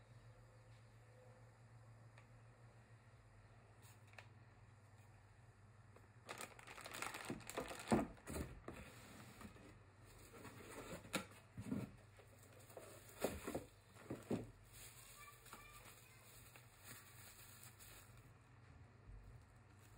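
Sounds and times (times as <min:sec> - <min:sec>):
packaging rustling and crinkling: 0:06.2 - 0:09.6, 0:12.3 - 0:18.3.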